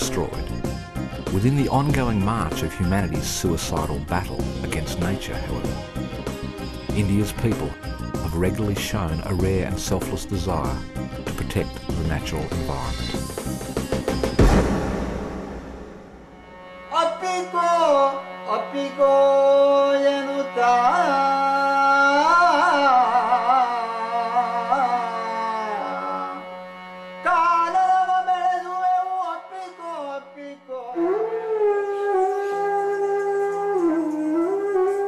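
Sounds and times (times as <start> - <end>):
sliding ornamented melody: 1.2 - 13.5.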